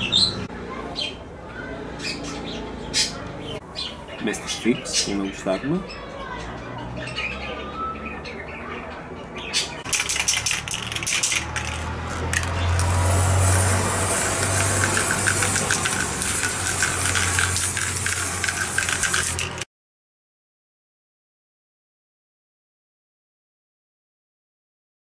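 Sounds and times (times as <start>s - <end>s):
spray can rattling: 9.8s - 19.7s
spray paint hissing: 9.9s - 19.7s.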